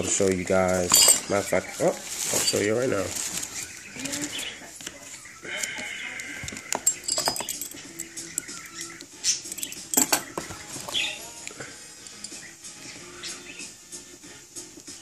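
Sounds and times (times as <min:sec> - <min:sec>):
packaging rustling and crinkling: 0:00.0 - 0:05.2
hookah parts clicking and knocking: 0:06.2 - 0:11.1.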